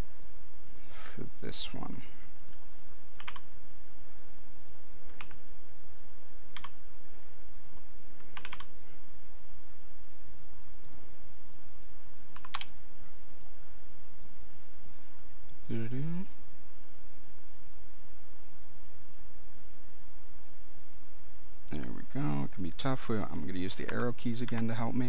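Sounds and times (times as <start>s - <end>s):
steady low hum: 0.0s - 25.0s
keyboard and mouse clicks: 2.4s - 3.5s, 4.6s - 5.4s, 6.5s - 6.8s, 7.6s - 8.8s, 12.3s - 13.5s, 23.8s - 24.8s.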